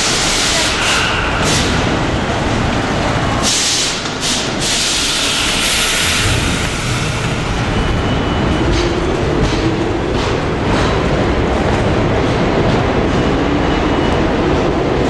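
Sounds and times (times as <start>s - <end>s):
subway train rumble: 0.0s - 15.0s
hissing air bursts: 3.4s - 7.3s.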